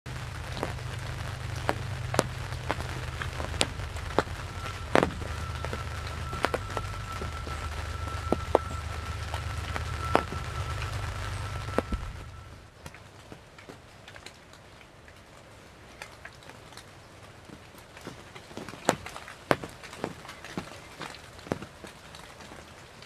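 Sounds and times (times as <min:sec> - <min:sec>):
heavy rain in woodland: 0:00.0 - 0:23.0
low steady rumble: 0:00.1 - 0:12.7
raindrops tapping close by: 0:00.1 - 0:23.0.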